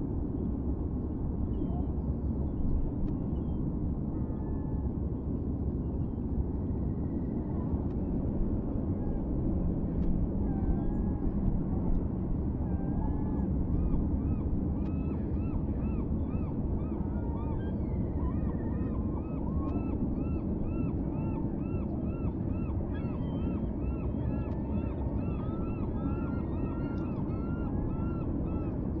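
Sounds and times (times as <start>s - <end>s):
flock of waterbirds calling: 13.8s - 28.9s.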